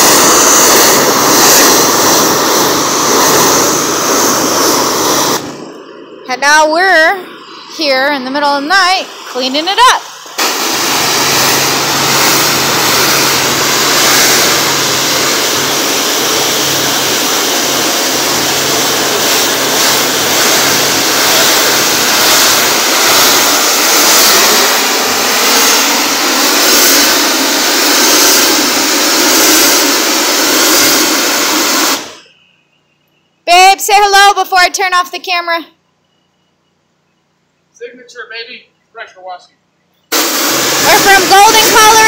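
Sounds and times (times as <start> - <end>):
pressure washer spraying concrete: 0.0 - 5.6, 7.8 - 32.3, 40.1 - 42.0
machine engine humming: 0.0 - 33.3, 39.9 - 42.0.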